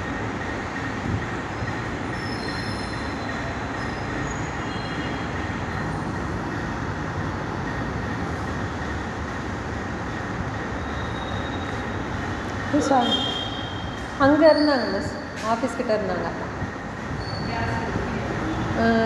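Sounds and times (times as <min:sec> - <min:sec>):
steady background noise: 0:00.0 - 0:19.0
faint high whistling tones: 0:10.8 - 0:12.0, 0:17.1 - 0:18.6.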